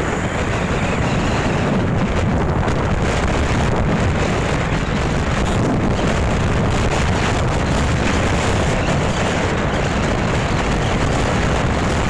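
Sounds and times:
motorcycle engine rumble: 0.0 - 12.0
wind buffeting microphone: 0.0 - 12.0.

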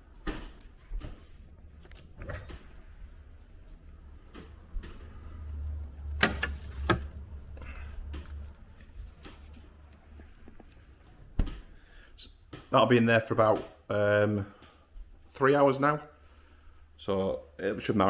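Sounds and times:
fridge door opening: 6.0 - 8.2
fridge door shutting: 6.1 - 7.2.

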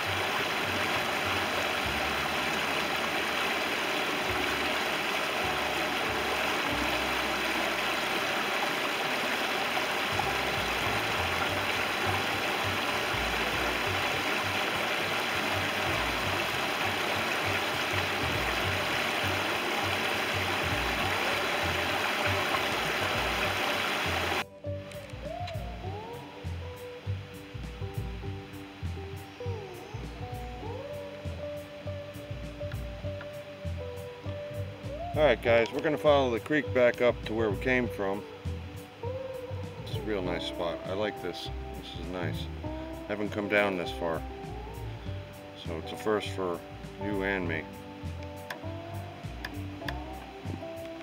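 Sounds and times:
creek rushing over rocks: 0.0 - 24.4.

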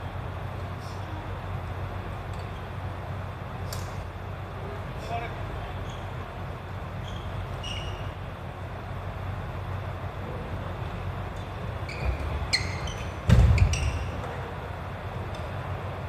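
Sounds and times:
low hum of hall: 0.0 - 16.0
shoes squeaking on wooden floor: 11.8 - 14.5
loud thump: 13.2 - 13.9.

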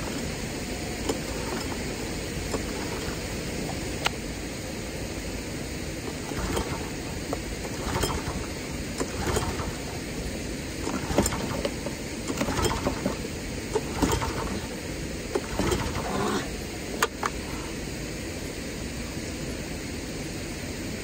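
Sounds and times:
engine cranking without catching: 0.0 - 4.1, 6.0 - 17.4
recoil starter pulls: 0.0 - 4.2, 6.0 - 17.5.

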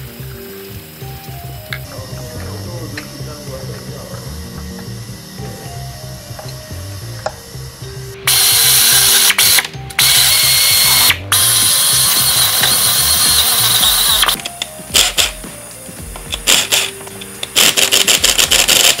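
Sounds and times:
quiet background music: 0.0 - 19.0
ratchet wrench ratcheting: 8.3 - 14.4, 15.0 - 15.4, 16.3 - 19.0.

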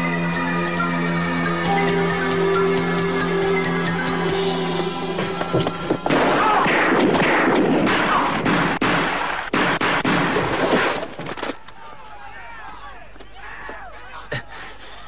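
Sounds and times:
gunshots: 6.0 - 11.5.

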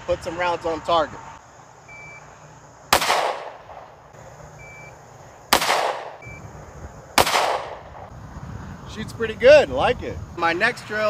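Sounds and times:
pistol shots: 2.9 - 4.0, 5.5 - 6.3, 7.2 - 8.1.

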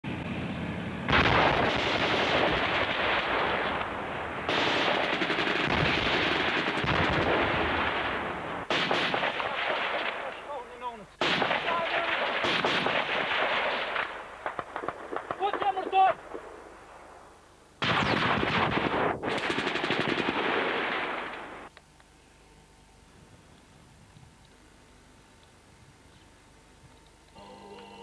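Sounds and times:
rapid automatic gunfire: 1.1 - 3.7, 4.5 - 8.0, 8.7 - 10.4, 11.2 - 16.1, 17.8 - 21.5.

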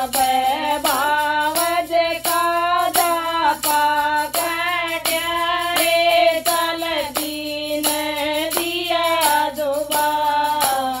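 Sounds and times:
percussion beat: 0.0 - 11.0
woman singing folk song: 0.0 - 11.0.

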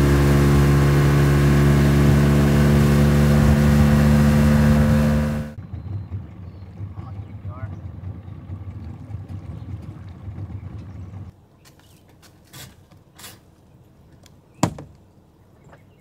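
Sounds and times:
boat engine idling: 0.0 - 11.3.

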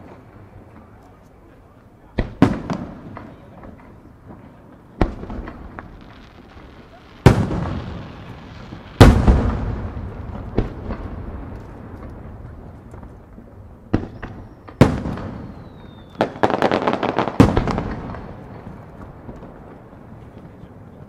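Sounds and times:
crackling pops: 10.3 - 20.7.

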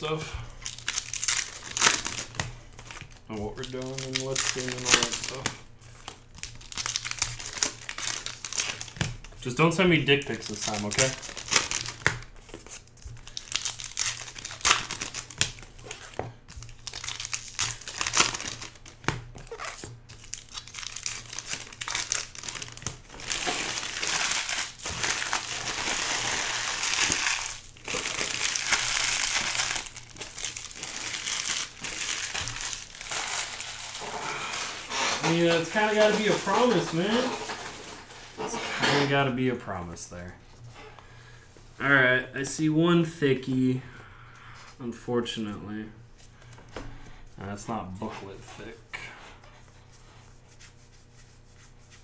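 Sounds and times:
plastic wrappers crinkling: 0.6 - 38.4.

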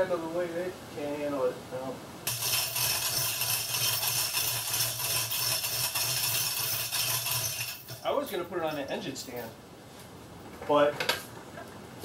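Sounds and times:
hoist chain links rattling: 2.3 - 9.6.

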